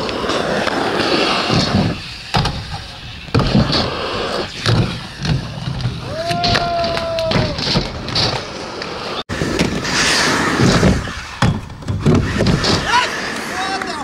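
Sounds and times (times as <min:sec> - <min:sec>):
skate wheels rolling on asphalt: 0:00.0 - 0:14.0
grind on wooden ledge: 0:09.6 - 0:13.0.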